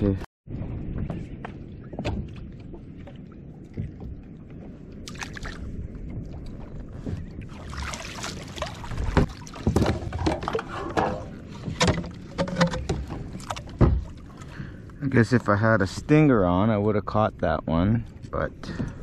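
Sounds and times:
water sloshing against kayak: 0:00.8 - 0:15.5.

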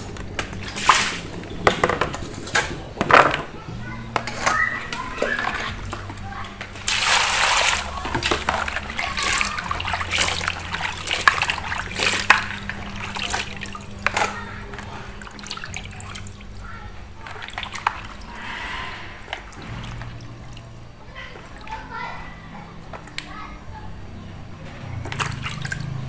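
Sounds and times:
water splashing in a basin: 0:00.0 - 0:02.7, 0:04.4 - 0:18.6, 0:24.6 - 0:26.0.

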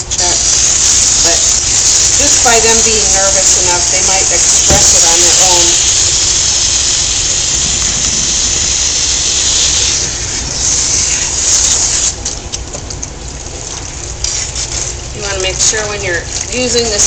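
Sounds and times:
water spraying from hand sprayer: 0:00.0 - 0:12.2, 0:14.2 - 0:17.0.

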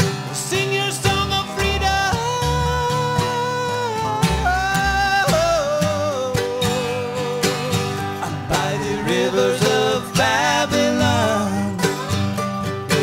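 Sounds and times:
acoustic string band playing reggae: 0:00.0 - 0:13.0.

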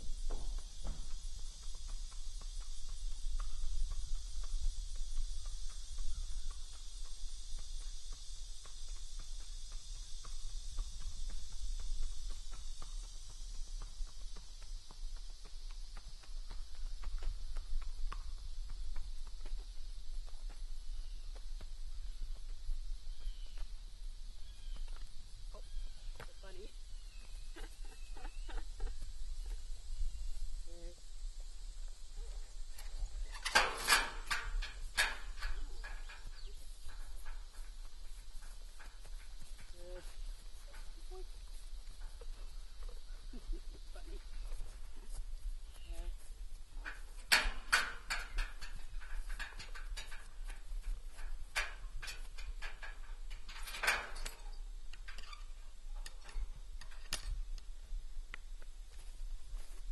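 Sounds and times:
horse hoof clicks: 0:00.1 - 0:23.7, 0:32.7 - 0:43.5, 0:44.2 - 0:57.7
metal gate latch clinking: 0:33.3 - 0:36.4.

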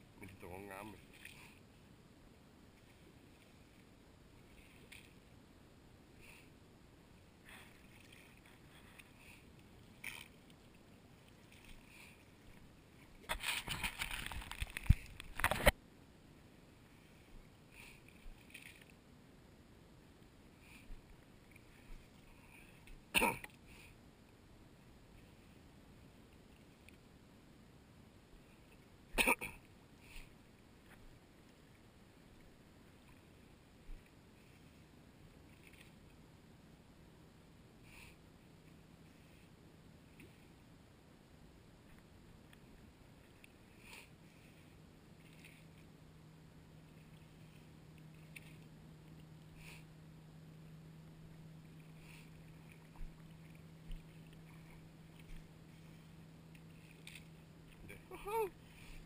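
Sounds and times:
water splashing and sloshing: 0:00.0 - 0:05.5, 0:06.4 - 0:15.8, 0:16.5 - 0:23.8, 0:28.5 - 0:36.5, 0:41.8 - 0:59.0
water lapping: 0:07.2 - 0:15.7, 0:41.8 - 0:59.0.

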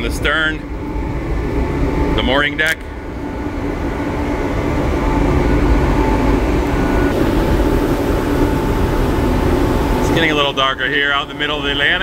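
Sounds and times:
ship engine drone: 0:00.0 - 0:12.0.

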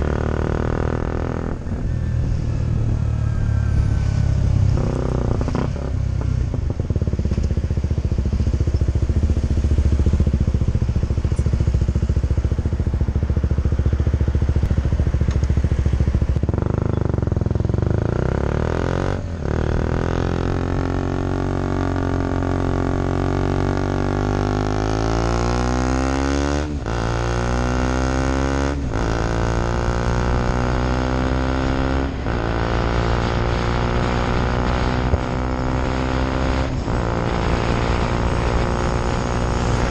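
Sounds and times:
motorcycle engine accelerating: 0:00.0 - 0:39.9.

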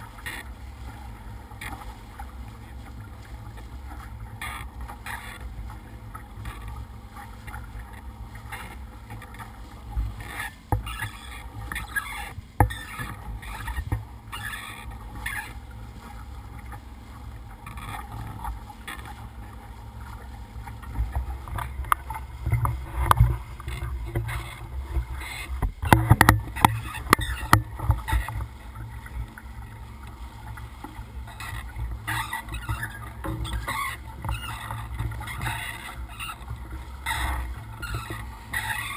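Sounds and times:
low motor rumble: 0:00.0 - 0:38.9
water rushing against boat hull: 0:00.0 - 0:38.9.

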